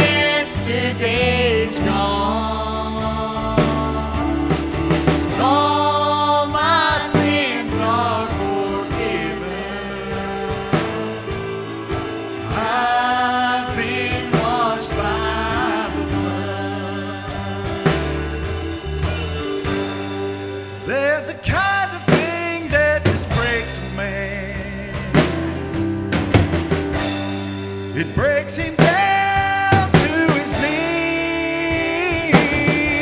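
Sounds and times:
singers holding long notes: 0.0 - 22.3
band chords: 0.0 - 33.0
drum strokes: 0.0 - 33.0.

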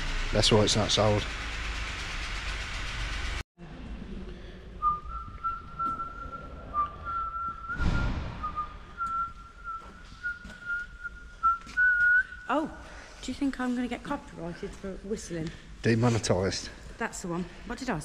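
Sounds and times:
person whistling a tune: 4.8 - 12.5
short burst of noise: 7.7 - 9.0.

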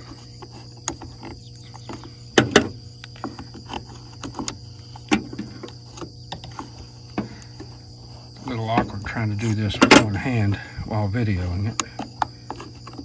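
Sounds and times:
crickets chirping: 0.0 - 13.0.

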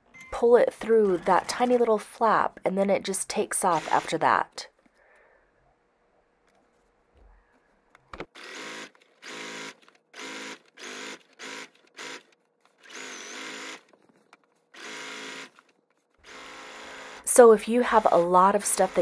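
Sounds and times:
sewing machine stitching: 14.8 - 19.0.

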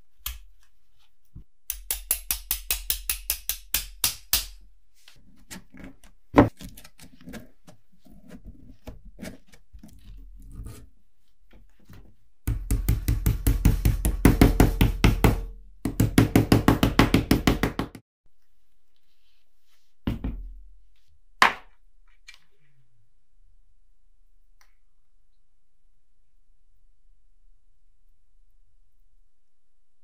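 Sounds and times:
hammer tapping on steel core: 1.7 - 4.6.

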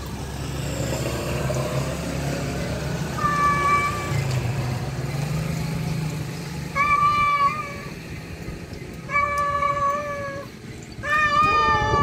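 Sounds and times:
low engine hum: 0.0 - 12.0
cat meowing: 6.8 - 7.9, 9.1 - 12.0.

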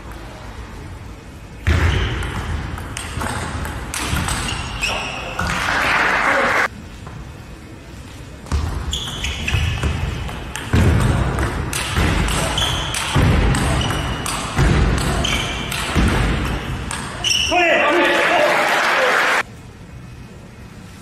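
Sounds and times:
shoes squeaking on floor: 4.2 - 5.7, 8.6 - 10.3, 12.3 - 17.6
crowd noise: 4.7 - 6.8, 9.3 - 19.5.

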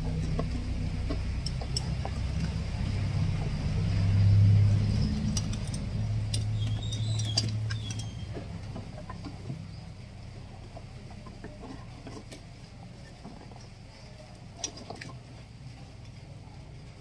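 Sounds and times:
hand tools clicking on metal: 0.0 - 9.4
low steady hum: 0.0 - 17.0.

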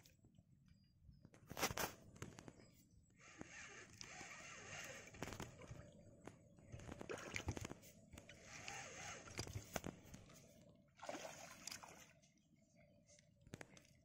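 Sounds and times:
fish splashing in water: 11.0 - 12.1.

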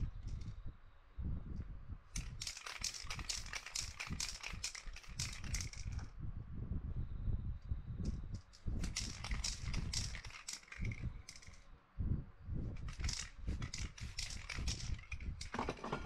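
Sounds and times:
spray paint can bursts: 12.9 - 15.1.

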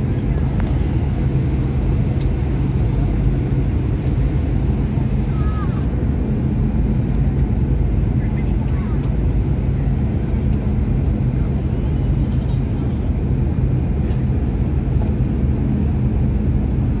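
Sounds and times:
constant hum: 0.0 - 17.0
jet engine drone: 0.0 - 17.0.

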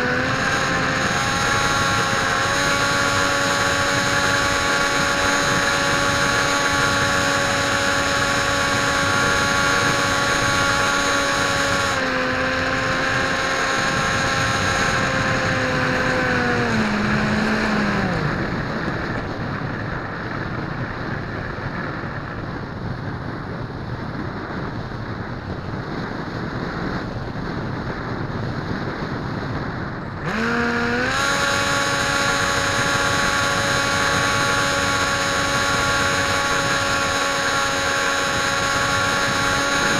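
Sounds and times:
model plane motor whining: 0.0 - 18.5, 30.2 - 39.9
wind noise: 0.0 - 39.9.

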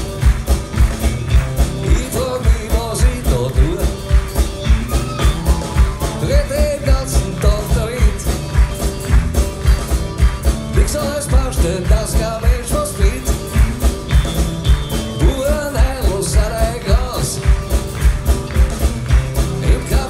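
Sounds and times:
acoustic guitars: 0.0 - 20.0
electric bass: 0.0 - 20.0
person singing: 1.7 - 4.2, 4.9 - 8.7, 10.7 - 13.6, 15.1 - 17.6, 19.4 - 20.0.

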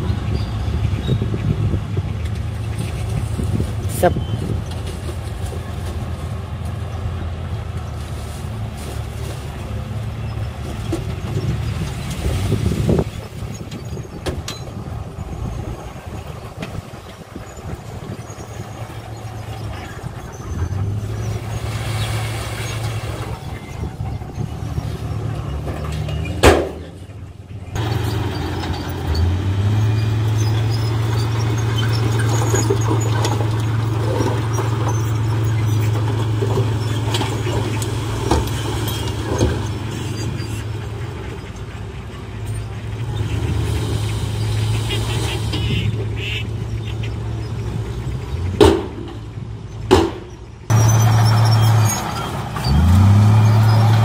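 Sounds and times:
diesel truck engines running: 0.0 - 54.0
rock and soil dumping: 3.0 - 14.0, 14.6 - 27.1, 27.8 - 40.8.

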